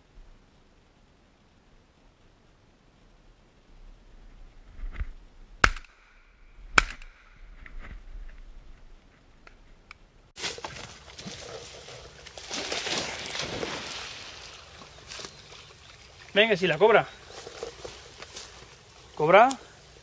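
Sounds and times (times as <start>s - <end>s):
rushing outdoor background noise: 8.5s - 20.0s.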